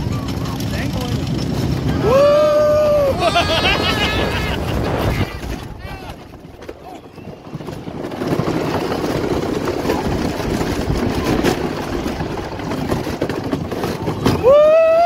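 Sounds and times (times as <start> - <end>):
roller coaster wheels rumbling: 0.0 - 15.0
rider whooping: 1.9 - 6.2, 14.2 - 15.0.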